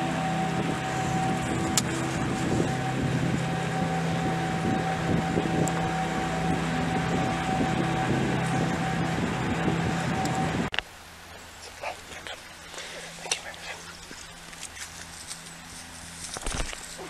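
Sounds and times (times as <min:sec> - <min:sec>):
sustained background music chords: 0:00.0 - 0:10.7.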